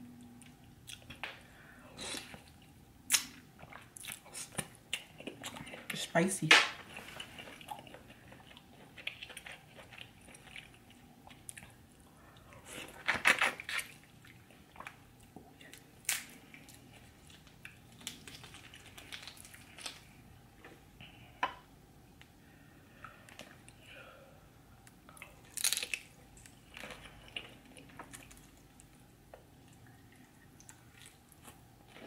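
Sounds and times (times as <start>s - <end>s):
wet chewing: 6.8s - 20.8s.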